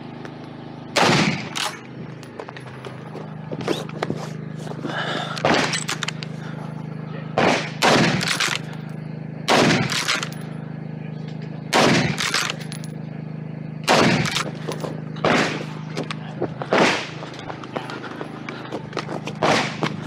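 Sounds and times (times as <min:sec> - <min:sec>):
loud rifle shots: 0:01.0 - 0:01.8, 0:05.4 - 0:06.1, 0:07.3 - 0:08.7, 0:09.5 - 0:10.3, 0:11.7 - 0:12.6, 0:13.8 - 0:14.6, 0:15.2 - 0:15.8, 0:16.7 - 0:17.2, 0:19.4 - 0:20.0.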